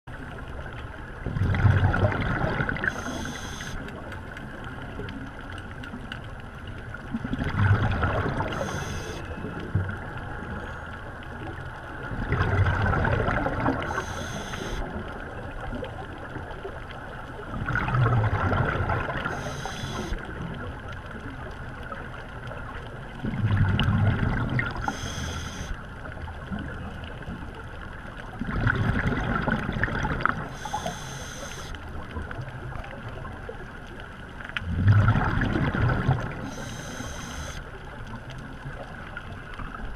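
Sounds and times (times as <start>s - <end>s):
gurgling exhaled bubbles: 1.2s - 4.1s, 7.1s - 10.6s, 12.0s - 16.8s, 17.4s - 20.9s, 23.1s - 27.5s, 28.3s - 33.8s, 34.5s - 39.9s
regulator inhale hiss: 2.9s - 3.8s, 8.5s - 9.2s, 13.9s - 14.8s, 19.3s - 20.2s, 24.8s - 25.8s, 30.5s - 31.8s, 36.4s - 37.6s.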